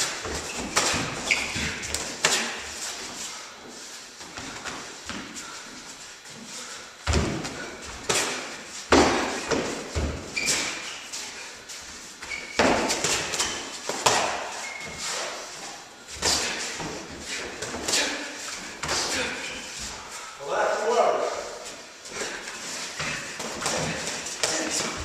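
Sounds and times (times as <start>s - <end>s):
boxing gloves thudding: 7.1s - 10.7s.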